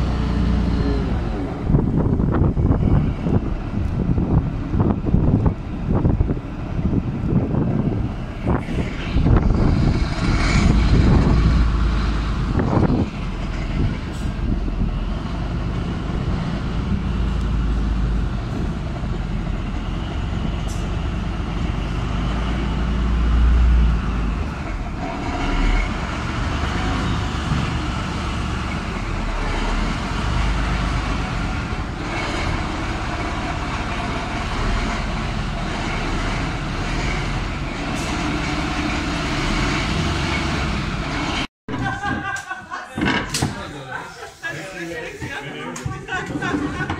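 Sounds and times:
tank engine rumbling: 0.0s - 42.1s.

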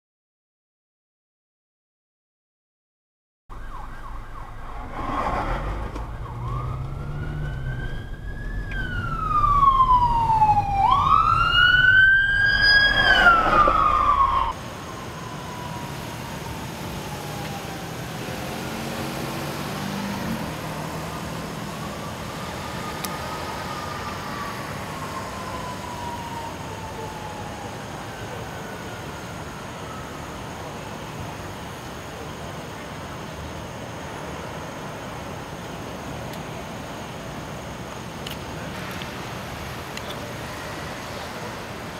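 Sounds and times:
emergency vehicle siren wailing: 3.5s - 33.0s, 40.0s - 41.9s
road rumble: 3.5s - 41.9s
traffic hum: 3.5s - 41.9s.

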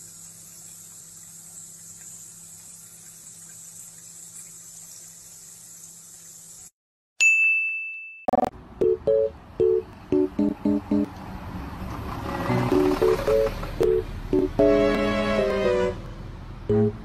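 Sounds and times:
tap water running into colander: 0.0s - 6.7s.

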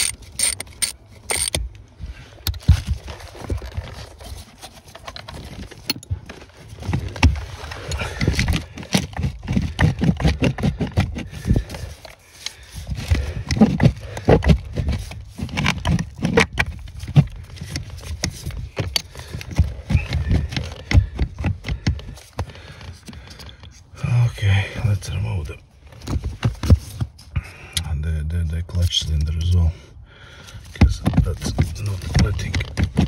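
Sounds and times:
hands knocking and rubbing plastic: 2.4s - 23.9s, 26.0s - 27.3s, 30.7s - 33.0s.

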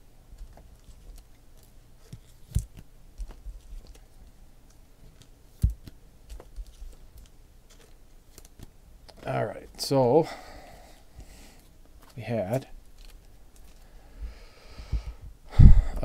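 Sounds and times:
trading cards rustling: 0.4s - 9.8s, 10.9s - 14.0s.

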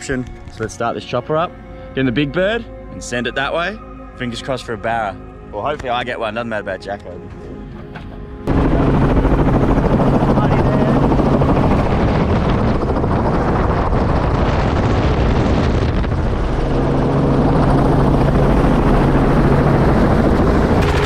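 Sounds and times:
helicopter rotor and engine noise: 5.6s - 21.0s.

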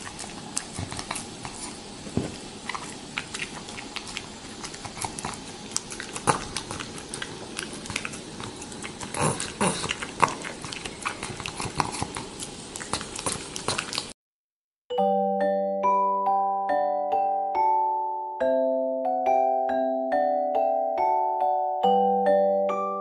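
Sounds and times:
dog licking and smacking: 0.0s - 14.1s.

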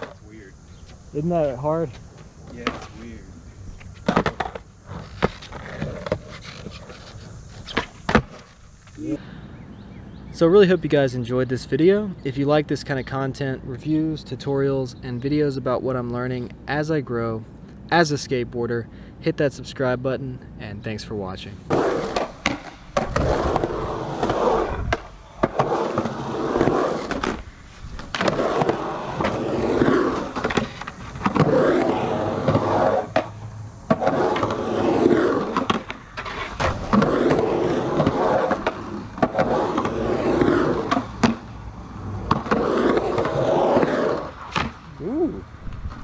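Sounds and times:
skateboard wheels rolling on concrete: 0.0s - 46.0s
skateboard clacks: 21.7s - 27.4s, 28.0s - 41.6s.

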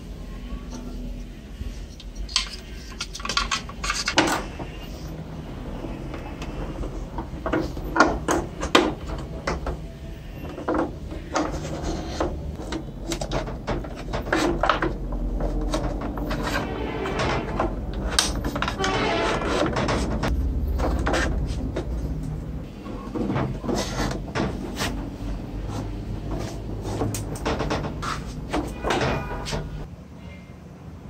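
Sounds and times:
hard plastic parts clicking: 2.0s - 5.0s.

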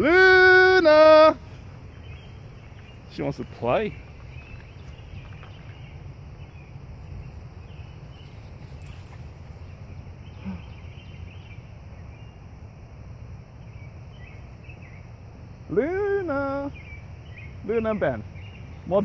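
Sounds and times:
steady low rumble: 1.4s - 15.8s.

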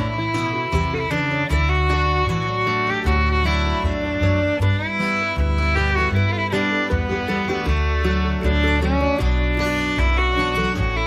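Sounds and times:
bass line: 0.0s - 11.0s
violin melody with sliding notes: 0.0s - 11.0s.

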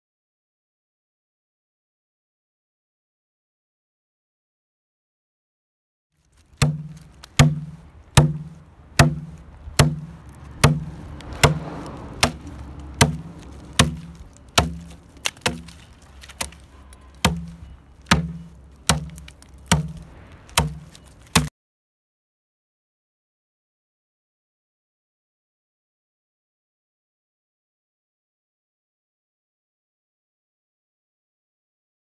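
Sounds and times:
stone axe chopping wood: 6.4s - 21.5s.

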